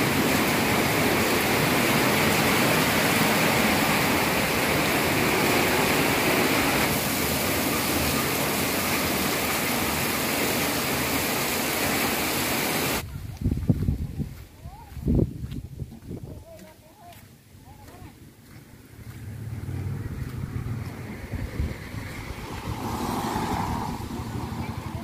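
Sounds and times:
rain on concrete: 0.0s - 13.0s, 19.1s - 25.0s.

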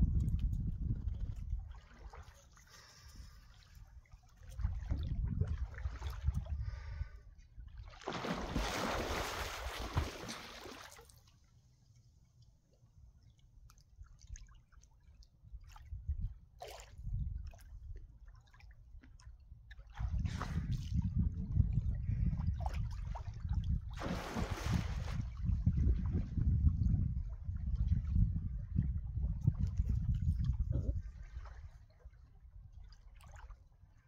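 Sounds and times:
wind rumble on microphone: 0.0s - 2.1s, 3.1s - 7.8s, 15.4s - 18.3s, 18.9s - 33.1s
water sloshing and splashing: 0.2s - 11.5s, 13.1s - 34.0s
small clicks and drips: 11.0s - 15.9s.

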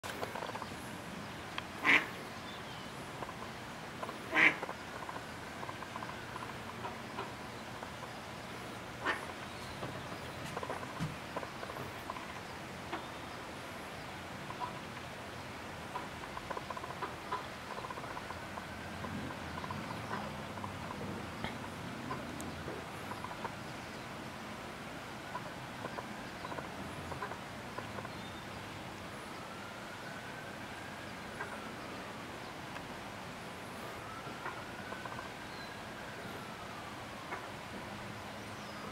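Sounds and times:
background hiss: 0.0s - 38.9s
duck clucking: 1.8s - 2.1s, 4.0s - 7.3s, 15.9s - 18.4s
duck quacking: 1.8s - 2.1s, 4.0s - 5.1s.

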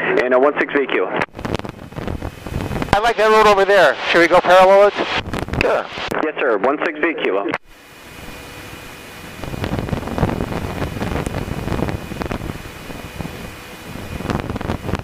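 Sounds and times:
airplane engine and propeller drone: 0.0s - 15.0s
wind buffeting microphone: 1.3s - 3.0s, 5.2s - 5.7s, 8.0s - 15.0s.

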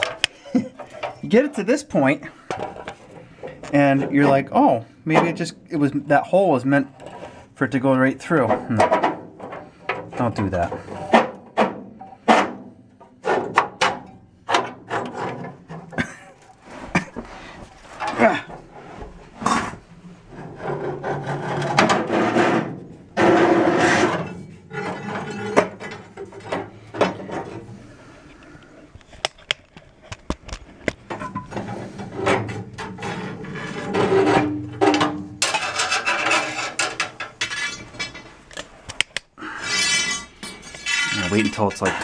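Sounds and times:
cable rubbing and scraping: 16.6s - 26.4s, 28.6s - 34.6s, 39.5s - 42.0s.

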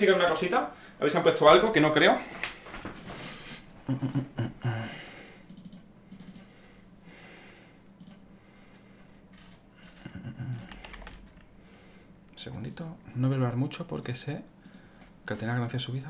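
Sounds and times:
computer keyboard typing: 5.5s - 6.5s, 9.3s - 11.5s.

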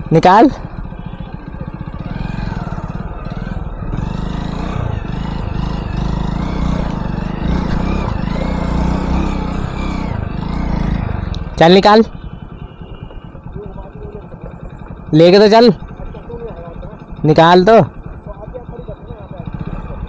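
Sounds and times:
motorcycle engine running: 0.0s - 20.0s.

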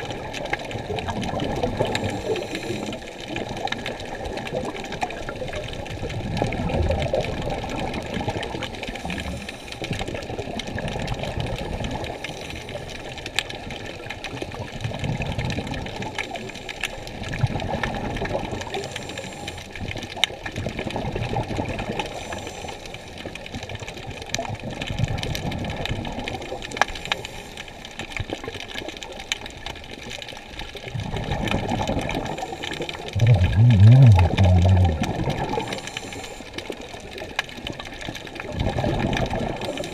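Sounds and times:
muffled water sloshing underwater: 0.0s - 39.9s
low rumble: 33.2s - 35.4s.

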